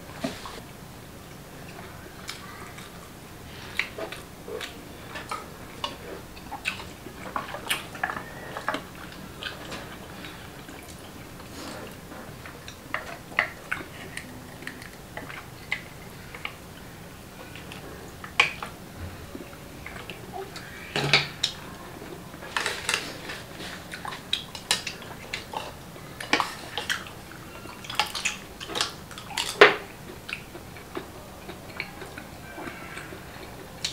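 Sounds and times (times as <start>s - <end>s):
wet chewing and lip smacks: 23.9s - 33.1s.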